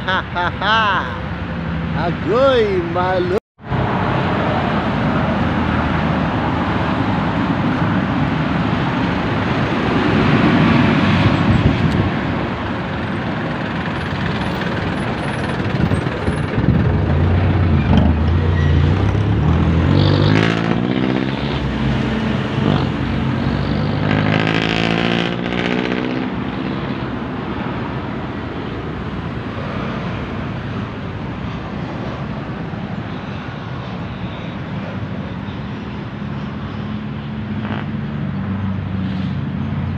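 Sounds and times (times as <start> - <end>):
road traffic passing: 0.0 - 39.9
vehicle accelerating through gears: 17.1 - 26.4.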